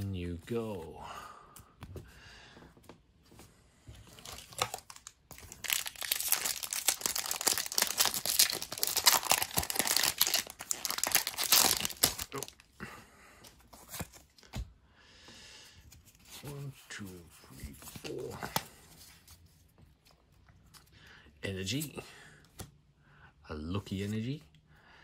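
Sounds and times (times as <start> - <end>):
foil wrapper tearing and crinkling: 4.2 - 12.6.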